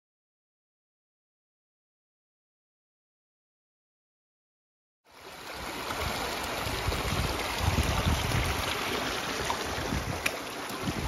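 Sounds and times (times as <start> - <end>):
stream splashing over stones: 5.2 - 11.0
wind on microphone: 5.6 - 11.0.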